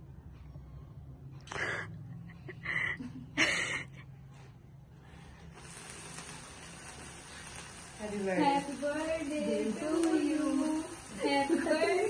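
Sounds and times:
sparkler hissing: 5.2s - 12.0s
short noisy bursts: 5.4s - 12.0s.

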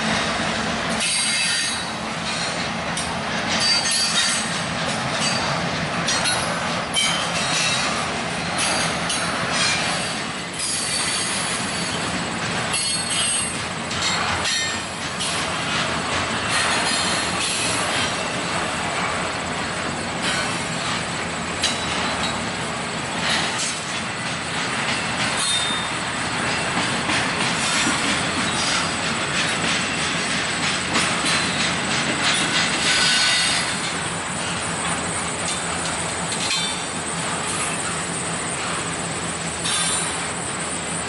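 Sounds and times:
train wheels rumbling on rails: 0.0s - 41.0s
high-pitched wheel squeals: 1.0s - 2.5s, 25.4s - 26.0s
wheels clacking over track: 23.2s - 38.8s.

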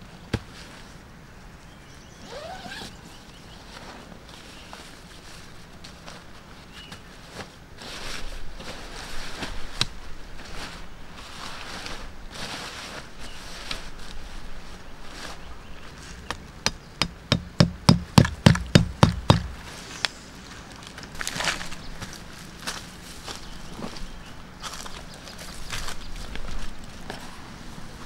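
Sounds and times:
tent fabric and poles rustling: 0.0s - 1.2s, 2.1s - 16.7s, 18.3s - 28.0s
tent peg knocks: 16.6s - 19.6s.

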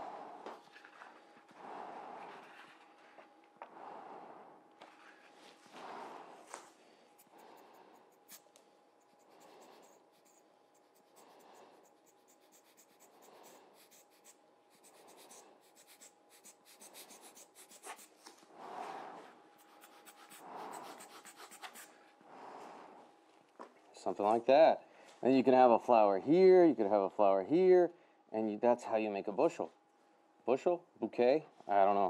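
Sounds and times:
air blower puffs: 0.0s - 2.6s, 3.6s - 8.4s.

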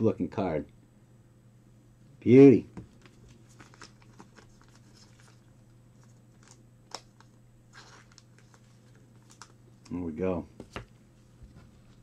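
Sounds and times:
low electrical hum: 0.0s - 12.0s
trading cards clicking and rustling: 2.8s - 5.4s.

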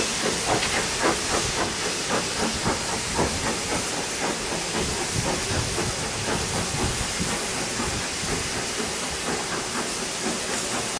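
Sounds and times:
steam hissing: 0.0s - 10.9s
steam locomotive exhaust chuffs: 0.0s - 10.9s
train coaches rolling past: 0.0s - 10.9s.

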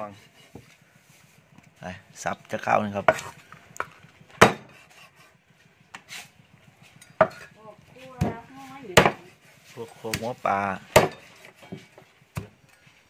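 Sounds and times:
cleaver chopping on wooden block: 3.0s - 5.2s, 8.2s - 9.4s, 10.9s - 11.2s, 12.3s - 12.6s.

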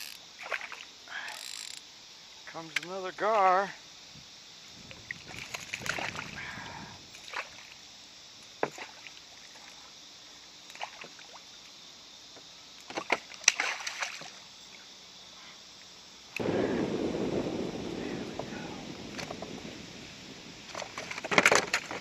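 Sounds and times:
fish splashing at water surface: 5.1s - 7.7s, 13.1s - 14.4s.

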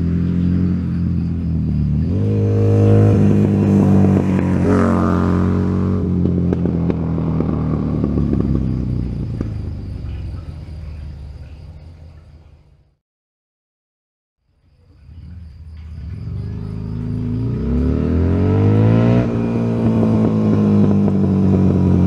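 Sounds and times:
motorcycle engine drive-by: 0.0s - 12.8s, 14.9s - 22.0s.

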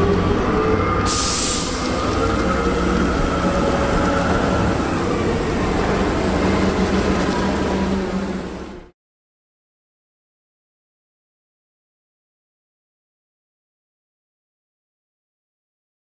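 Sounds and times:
heavy vehicle engine droning: 0.0s - 8.9s
burst of hiss: 1.1s - 2.0s.

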